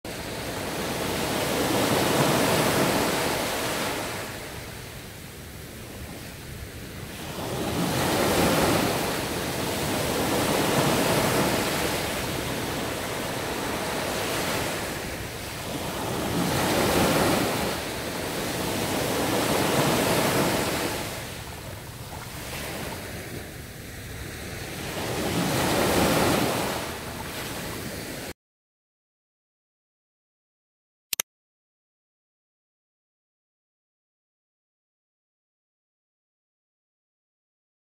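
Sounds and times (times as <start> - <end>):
ocean waves breaking on shore: 0.1 - 28.3.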